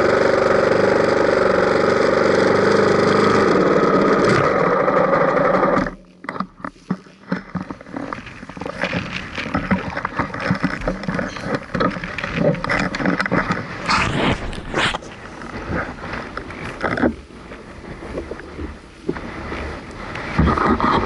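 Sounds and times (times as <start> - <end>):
dirt bike engine idling: 0.0 - 5.8
rustling and knocks of handling gear: 6.0 - 18.5.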